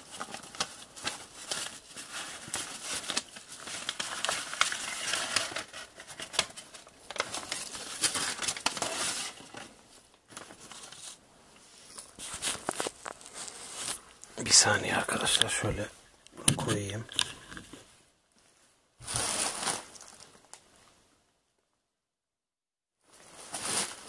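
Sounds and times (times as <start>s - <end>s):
paper rustling and crinkling: 0.0s - 11.2s, 11.8s - 15.8s, 19.0s - 20.6s, 23.1s - 24.0s.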